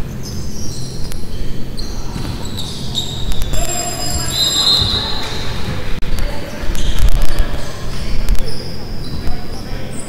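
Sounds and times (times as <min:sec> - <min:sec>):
echoing hall noise: 0:00.0 - 0:10.0
players' voices: 0:01.2 - 0:10.0
short high squeaks: 0:01.8 - 0:05.4.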